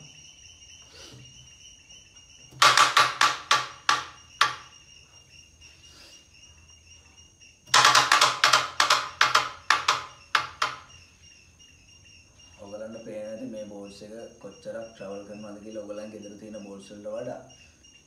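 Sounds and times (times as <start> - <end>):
carrom striker knocking cushions: 2.5 - 4.8, 7.7 - 11.0.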